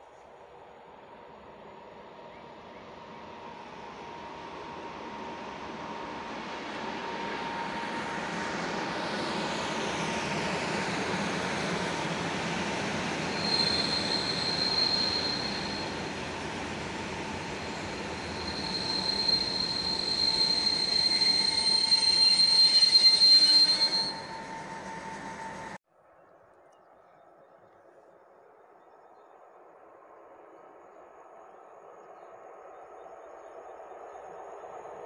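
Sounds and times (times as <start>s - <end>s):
electric train running past: 0.4s - 25.8s
high-pitched wheel squeal: 7.2s - 16.1s, 17.4s - 25.8s.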